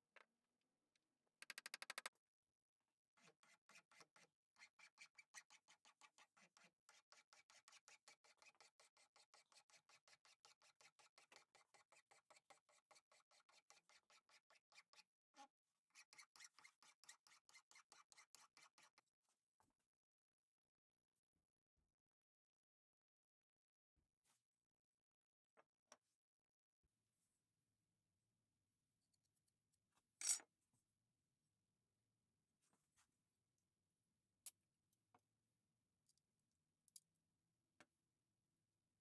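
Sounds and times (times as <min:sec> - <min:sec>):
hand file rasping on metal: 0:03.2 - 0:15.0, 0:16.0 - 0:19.0.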